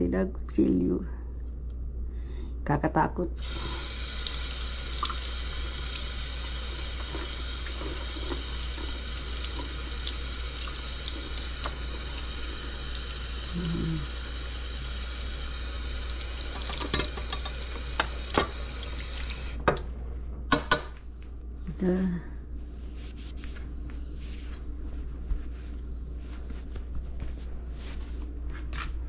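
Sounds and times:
tap running into a sink: 7.0s - 12.1s, 16.2s - 19.8s.

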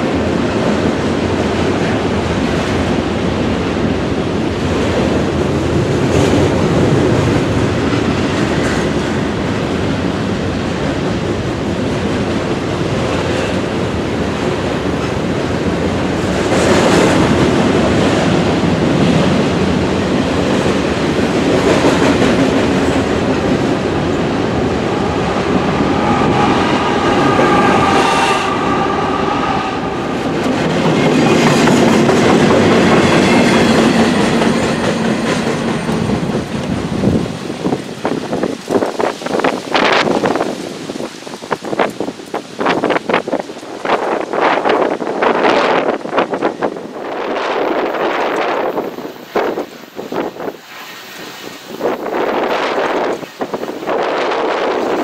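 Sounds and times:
freight train wheels rumbling: 0.0s - 55.0s
wheels clacking over rail joints: 29.9s - 45.5s.

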